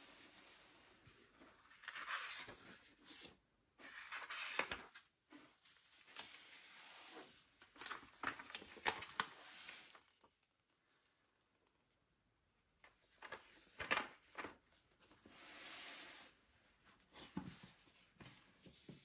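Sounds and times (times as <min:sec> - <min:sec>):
book pages rustling: 0:01.0 - 0:10.2, 0:12.9 - 0:15.3.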